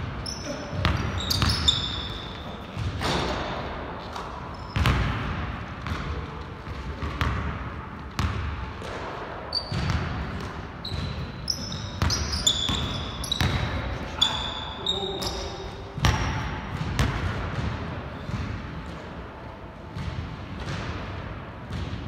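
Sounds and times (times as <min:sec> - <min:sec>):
sneaker squeaks: 0:00.0 - 0:03.5, 0:04.4 - 0:05.1, 0:09.4 - 0:16.4
basketball bouncing on wooden floor: 0:16.0 - 0:18.6.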